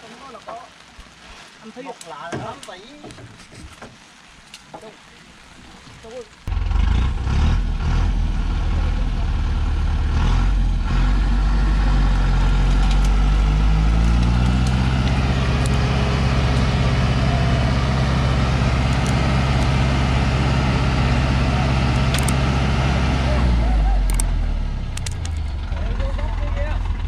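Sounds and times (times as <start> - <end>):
diesel truck engine revving: 6.5 - 27.0.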